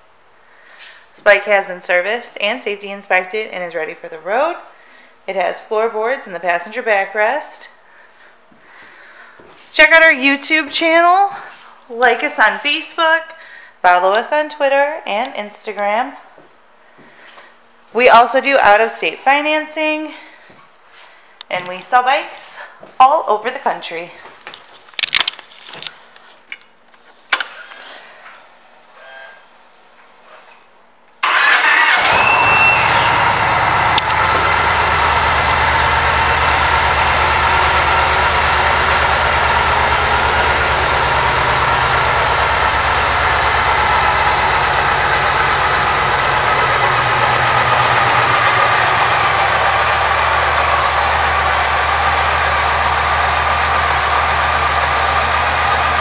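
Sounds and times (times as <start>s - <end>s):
motorcycle engine starting and idling: 31.2s - 56.0s.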